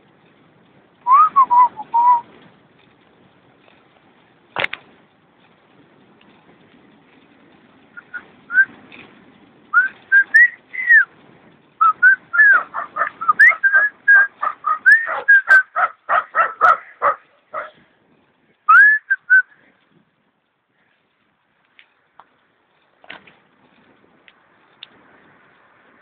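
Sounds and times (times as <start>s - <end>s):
person whistling a tune: 1.1s - 2.2s, 8.0s - 8.7s, 9.8s - 11.1s, 11.8s - 12.6s, 13.2s - 15.6s, 18.7s - 19.5s.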